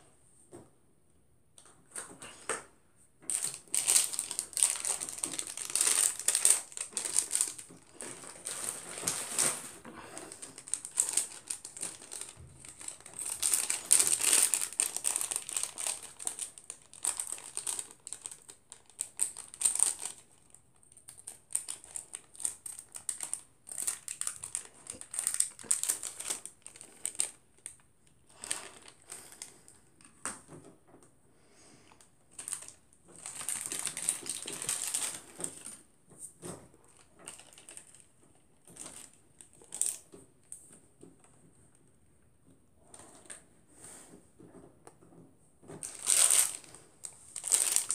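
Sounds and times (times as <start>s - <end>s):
snack wrapper crinkling: 3.3s - 29.6s, 32.3s - 35.8s, 36.9s - 38.1s, 38.7s - 40.0s, 45.8s - 47.9s
crunching and chewing cereal: 3.3s - 29.8s, 32.3s - 35.9s, 36.7s - 40.1s, 45.8s - 47.9s.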